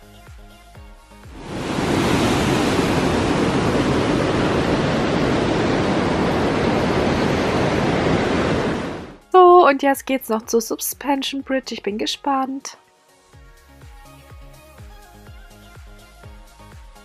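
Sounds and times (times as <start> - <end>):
background music with a beat: 0.0 - 1.4, 12.8 - 17.0
creek water rushing over rocks: 1.4 - 6.5.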